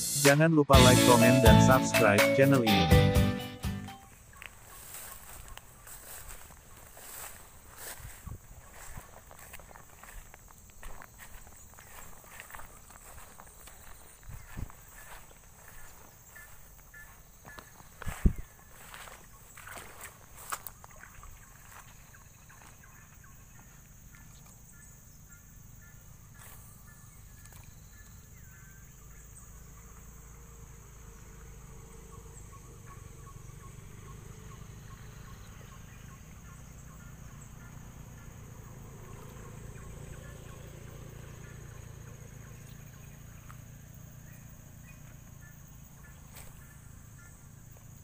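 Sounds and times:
high insect drone: 0.0 - 48.0
bird calling repeated notes: 11.3 - 21.8.

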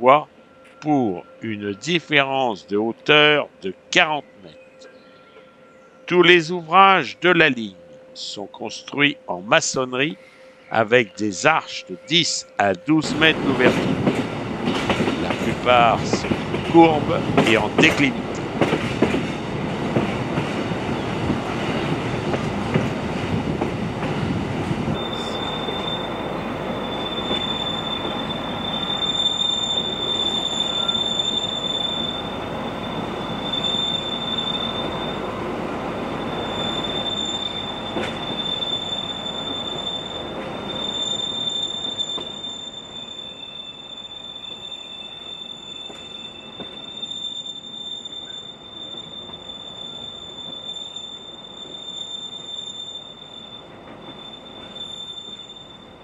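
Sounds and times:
railway carriages rumbling on track: 0.0 - 56.0
high wheel squeal: 9.7 - 18.4, 24.9 - 56.0.

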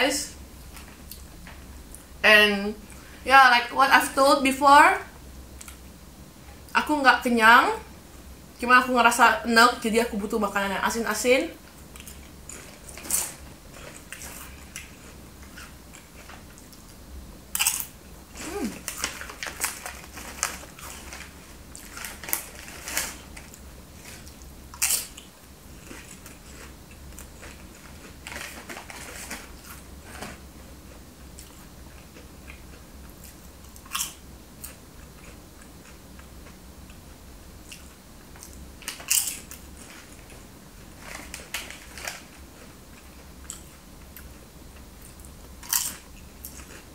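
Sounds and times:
person chewing crunchy snack: 17.5 - 30.2, 30.9 - 36.0, 37.6 - 40.2, 45.0 - 46.9
plastic packet crinkling: 18.7 - 24.2.

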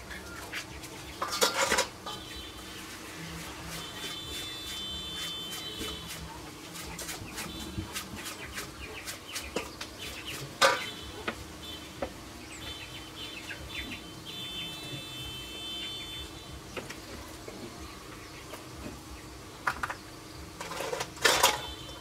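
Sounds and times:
birds chirping: 0.0 - 20.6
metal parts clinking in steel bowl: 1.2 - 1.9, 20.6 - 21.7.

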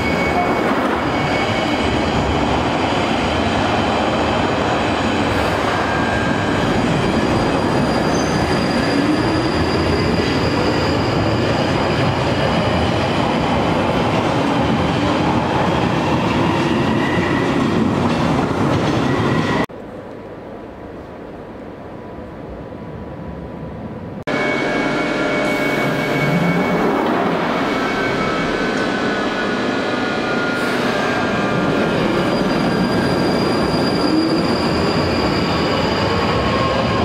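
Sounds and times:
train wheels on rails: 0.0 - 19.7.

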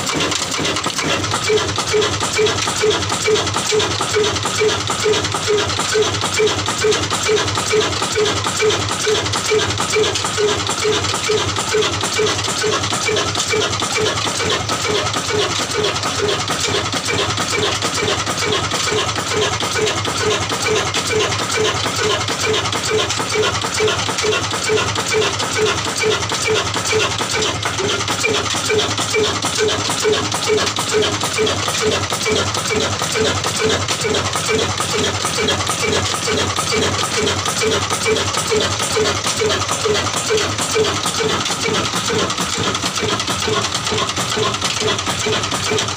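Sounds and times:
diesel engine running slowly: 0.0 - 45.9.

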